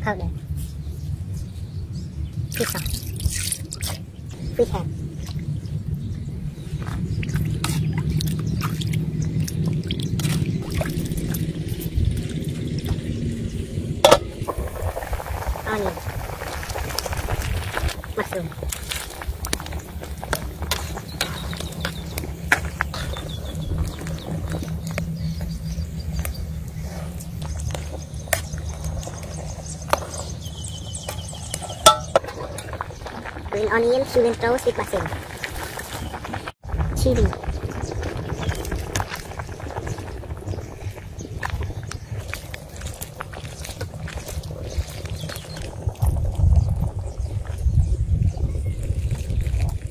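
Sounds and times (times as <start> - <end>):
steady low rumble: 0.0 - 49.9
soup bubbling in a pot: 6.6 - 13.3, 13.9 - 49.9
metal spoon knocking on pot: 31.9 - 32.2.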